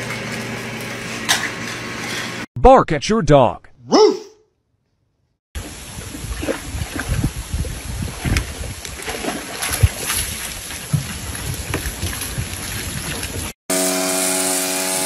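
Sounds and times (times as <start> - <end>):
wind on microphone: 5.6 - 13.5
water sloshing and splashing: 5.6 - 13.6.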